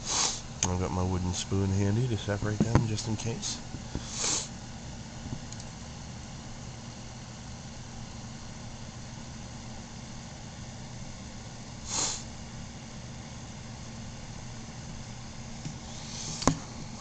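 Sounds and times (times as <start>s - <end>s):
short breathy hiss: 0.0s - 0.5s, 3.9s - 4.6s, 11.8s - 12.3s, 15.8s - 16.5s
low electrical hum: 0.0s - 17.0s.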